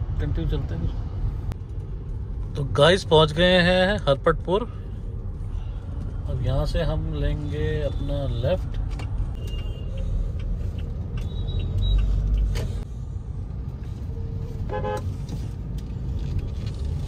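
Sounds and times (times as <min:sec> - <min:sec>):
car engine and tyre rumble: 0:00.0 - 0:17.0
car horn toot: 0:14.7 - 0:15.1.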